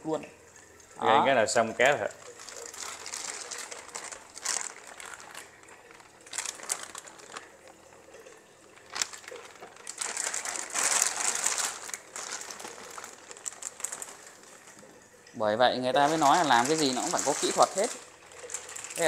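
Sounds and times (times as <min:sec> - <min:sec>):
plastic bag crinkling: 0:01.8 - 0:15.0, 0:16.0 - 0:19.0.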